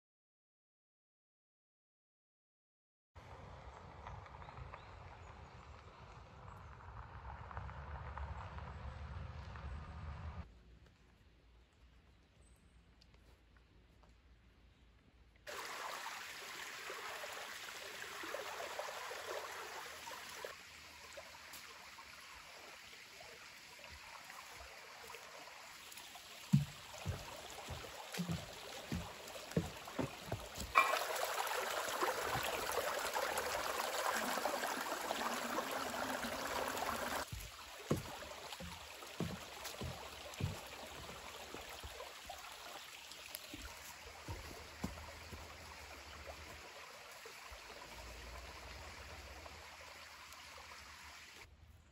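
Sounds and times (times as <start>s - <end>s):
creek running: 15.5s - 51.5s
footsteps on wooden planks: 26.4s - 31.0s, 37.2s - 42.0s, 43.3s - 45.6s
footsteps on leafy trail: 26.5s - 31.0s, 37.2s - 41.8s, 43.3s - 45.5s.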